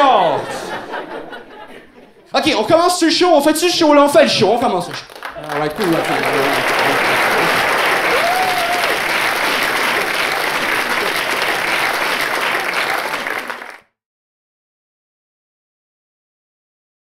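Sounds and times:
audience clapping: 4.4 - 13.9.

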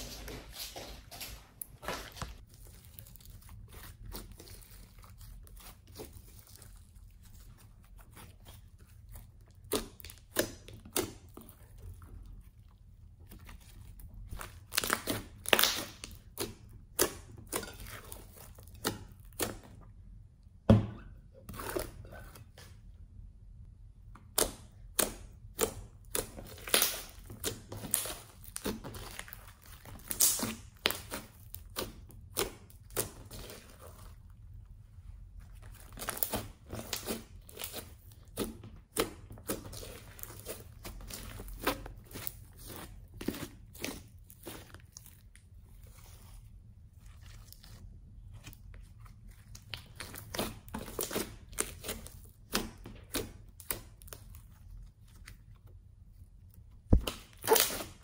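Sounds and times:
slime squeezed with sticky pops: 56.8 - 58.0.

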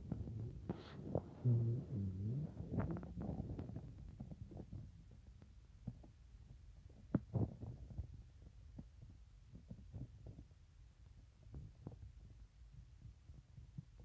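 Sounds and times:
cat purring: 0.0 - 8.9.

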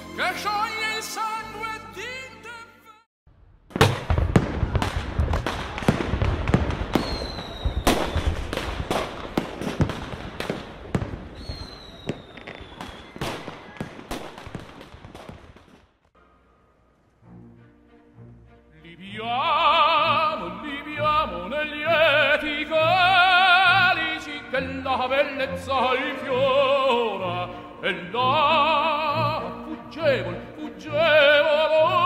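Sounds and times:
fireworks bangs and crackling: 3.7 - 16.1
firework whistles: 6.9 - 8.4, 11.3 - 14.6.

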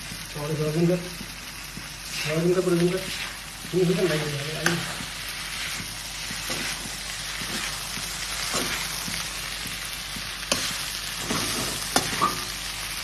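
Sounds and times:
food sizzling in oil: 0.0 - 13.0
spoon scraping pan: 3.0 - 9.4, 10.5 - 12.6.

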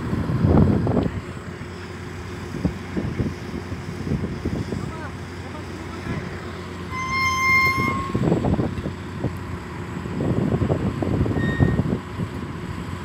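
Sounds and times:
wind buffeting microphone: 0.0 - 5.4, 7.7 - 13.0
low machinery rumble: 0.0 - 13.0
high signal toot: 6.9 - 8.3, 11.4 - 11.8.

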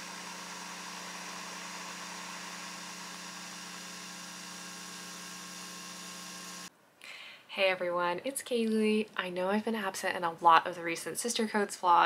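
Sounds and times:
coffee machine humming: 0.0 - 6.7.

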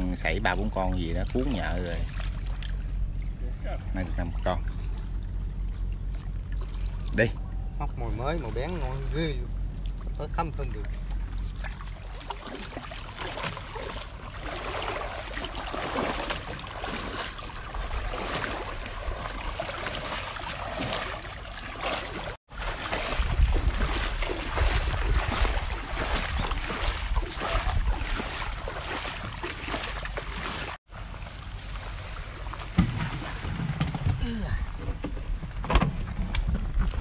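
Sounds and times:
footsteps sloshing through water: 0.0 - 34.8
wind rumbling on microphone: 22.6 - 29.4, 32.9 - 37.0.

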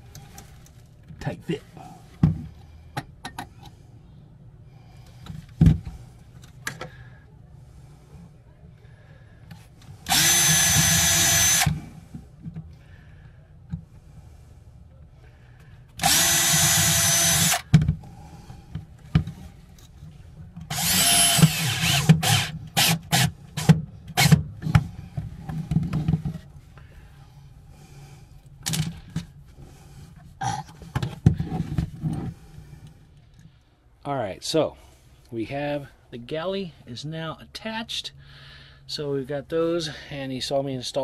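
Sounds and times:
cordless drill running: 10.0 - 11.8, 16.0 - 17.7, 20.7 - 24.4.

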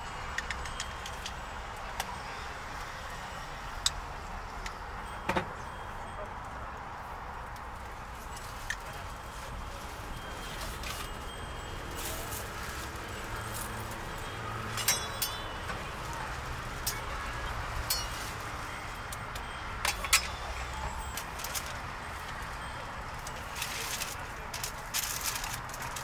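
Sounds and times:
low street hum: 0.0 - 26.0
metal utensils clinking: 12.0 - 21.9.

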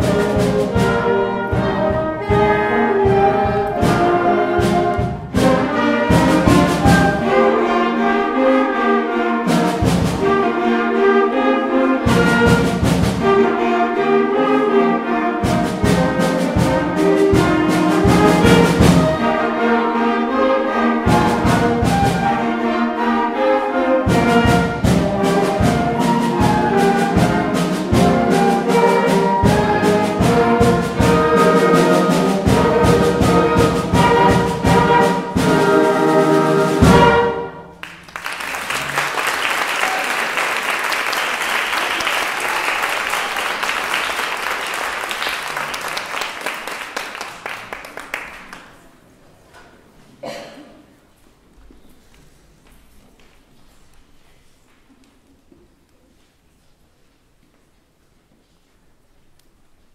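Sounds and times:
drum beat: 0.0 - 7.4, 15.4 - 19.2, 24.1 - 37.3
concert band playing: 0.0 - 37.8
audience applause: 37.8 - 48.9.

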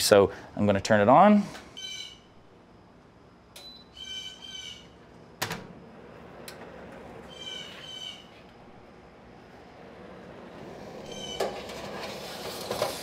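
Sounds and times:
high chirping calls: 1.8 - 2.3, 3.6 - 5.0, 7.3 - 8.4, 11.1 - 11.4.

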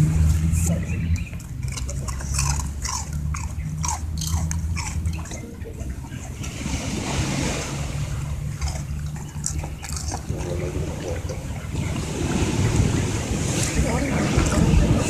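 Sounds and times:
dog chewing sticky food: 0.0 - 13.0
low steady hum: 0.0 - 15.0
wind on microphone: 9.7 - 15.0.

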